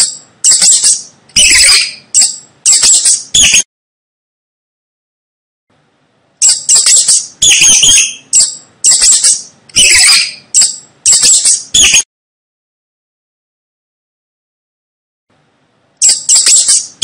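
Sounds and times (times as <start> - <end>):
mouse squeaking: 0.0 - 3.6, 6.4 - 12.1, 16.0 - 17.0.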